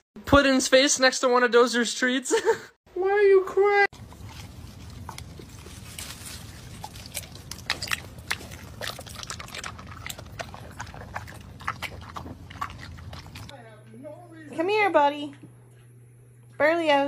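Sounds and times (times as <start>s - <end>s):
dog chewing tomatoes: 3.9s - 13.6s.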